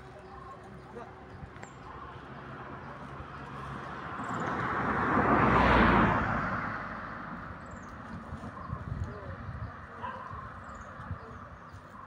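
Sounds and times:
passing vehicle rushing: 2.0 - 9.9.

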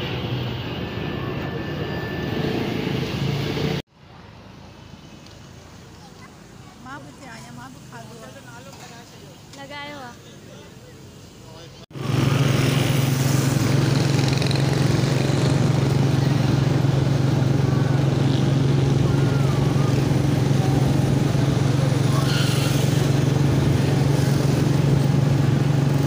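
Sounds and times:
vehicle engine droning: 11.9 - 26.0.

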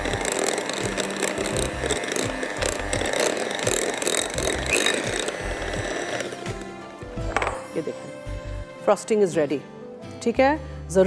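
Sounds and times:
electric hand mixer whipping frosting: 0.0 - 7.6
background music: 0.0 - 11.0.

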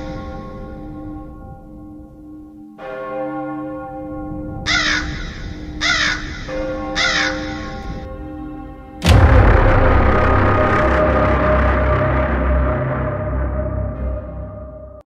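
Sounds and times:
crow cawing: 4.7 - 8.1.

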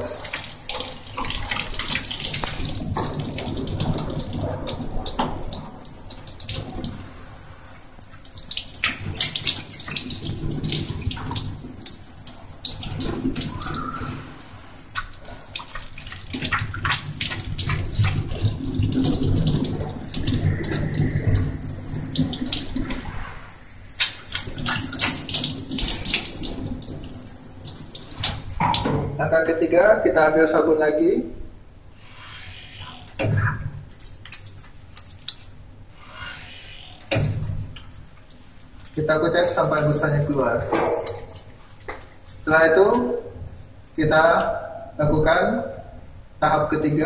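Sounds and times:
tap water splashing over hands: 0.0 - 7.2, 8.0 - 23.1, 24.0 - 29.2.

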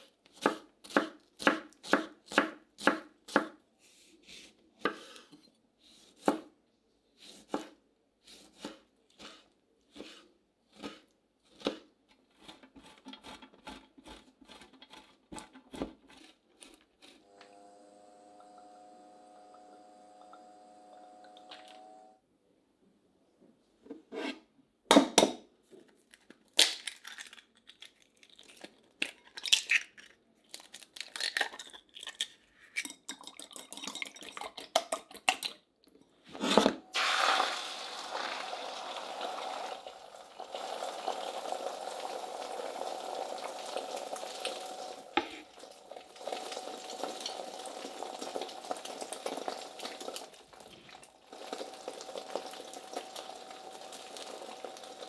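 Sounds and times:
egg sizzling in a frying pan: 36.9 - 55.0.

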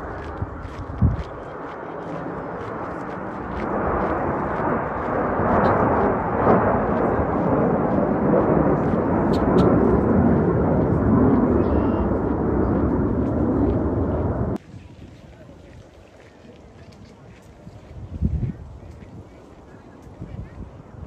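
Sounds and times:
jets roaring past: 1.4 - 14.6.

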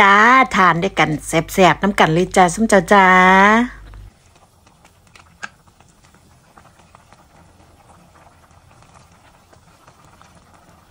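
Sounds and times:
curry bubbling in pot: 0.0 - 10.9.

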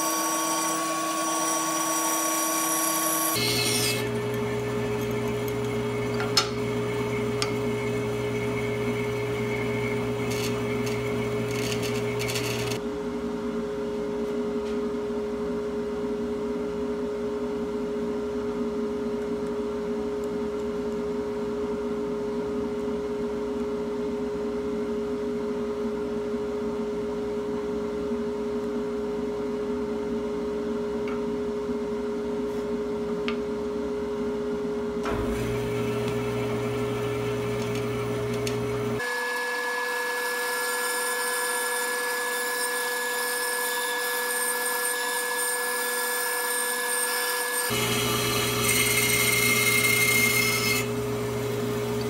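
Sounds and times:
workshop machinery humming: 0.0 - 15.0, 35.0 - 52.0.

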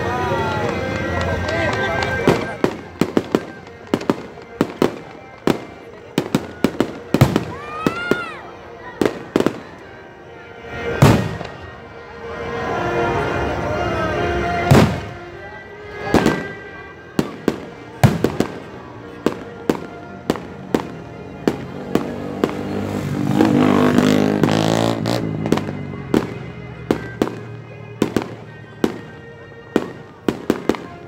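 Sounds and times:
fireworks bangs and pops: 0.5 - 8.3, 10.9 - 11.7, 14.7 - 15.2, 16.0 - 16.6, 17.2 - 31.0.

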